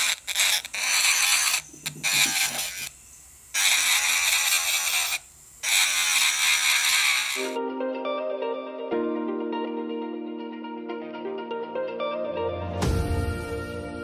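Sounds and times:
electric nail drill grinding: 0.0s - 7.6s.

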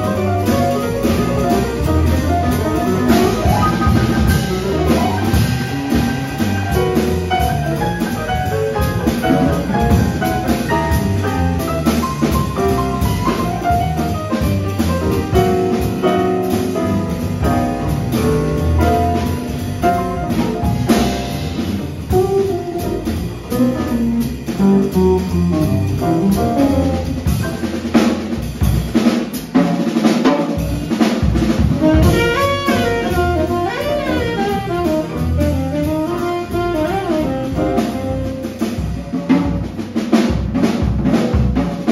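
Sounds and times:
drum kit: 0.0s - 41.9s
piano: 0.0s - 41.9s
upright bass: 0.0s - 41.9s
saxophone: 31.8s - 38.8s.

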